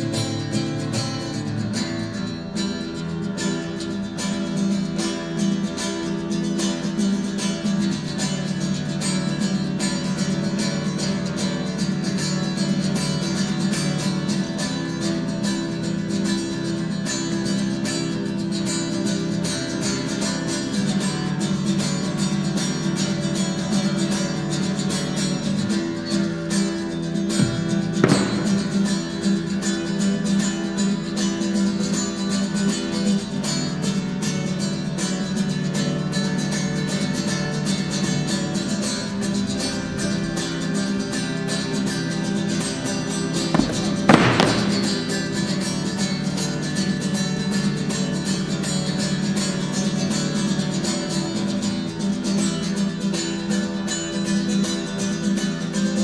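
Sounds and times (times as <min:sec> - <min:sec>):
classical guitar strumming: 0:00.0 - 0:56.0
single thump: 0:27.4 - 0:29.3, 0:43.6 - 0:45.4.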